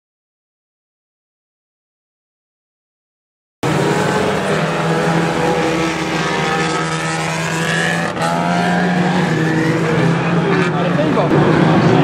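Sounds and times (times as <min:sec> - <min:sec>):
small car engines revving: 0:03.6 - 0:12.0.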